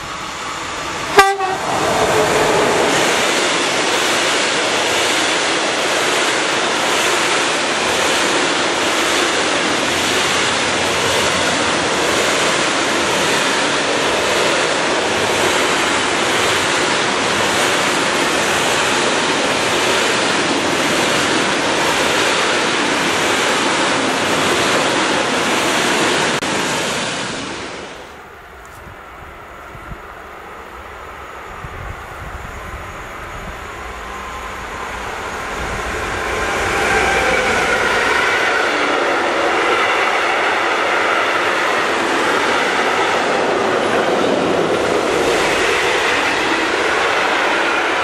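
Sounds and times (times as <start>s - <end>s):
freight train wheels on rail: 0.0s - 48.0s.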